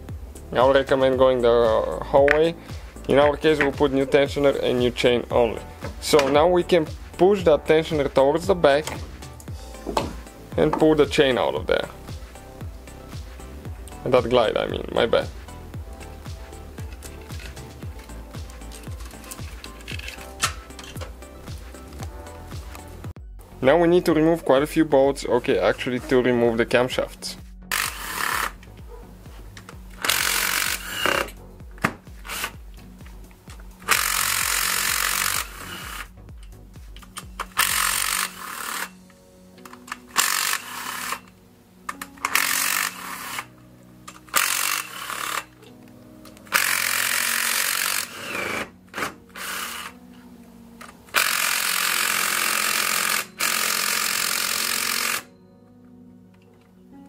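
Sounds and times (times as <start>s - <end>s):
background music: 0.0s - 57.0s
impact driver bursts: 27.7s - 28.6s, 30.0s - 31.4s, 33.8s - 36.1s, 37.3s - 39.0s, 39.7s - 41.3s, 42.2s - 43.5s, 44.3s - 45.5s, 46.5s - 50.0s, 51.1s - 55.3s.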